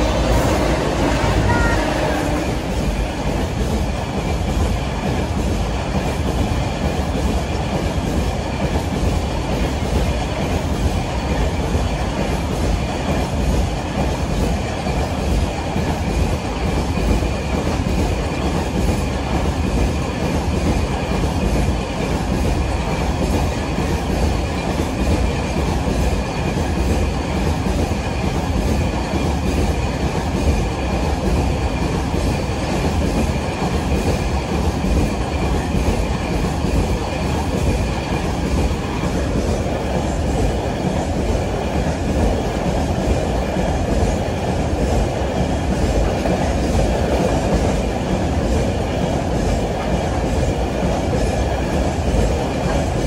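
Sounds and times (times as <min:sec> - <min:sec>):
train wheels rumbling on rails: 0:00.0 - 0:53.0.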